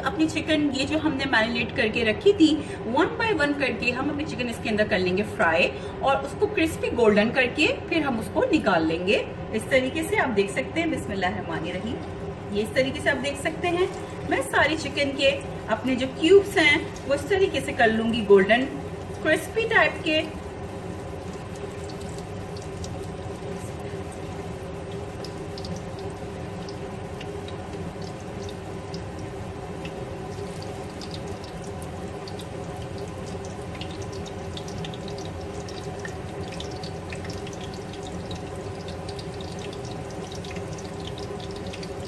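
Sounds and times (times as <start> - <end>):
hot oil sizzling with chicken: 12.0 - 42.0
small crackles and pops: 20.2 - 42.0.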